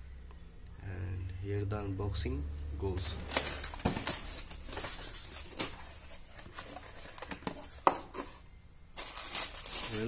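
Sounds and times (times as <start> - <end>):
plastic bags crinkling: 3.0 - 8.2, 9.0 - 10.0.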